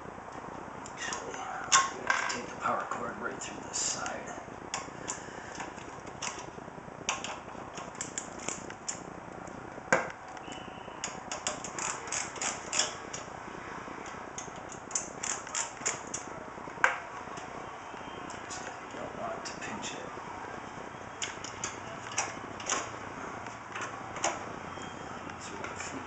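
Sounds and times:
screwdriver clicking: 11.0s - 13.3s, 14.4s - 16.3s.

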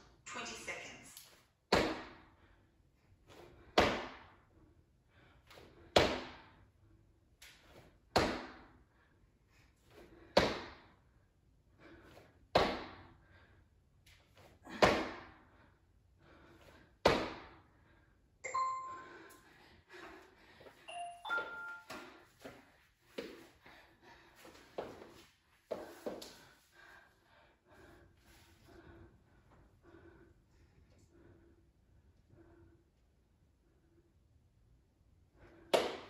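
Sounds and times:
electronic timer chime: 18.4s - 19.4s, 20.9s - 22.1s.

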